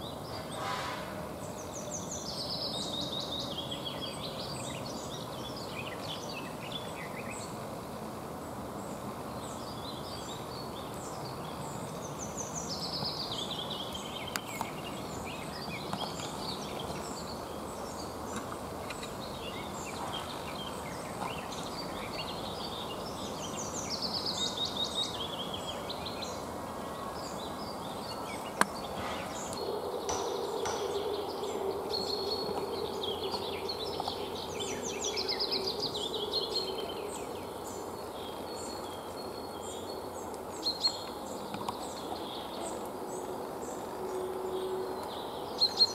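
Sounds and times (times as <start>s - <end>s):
songbirds chirping: 0.0s - 45.9s
steady outdoor hiss: 0.0s - 45.9s
bird song descending in pitch: 27.8s - 39.9s.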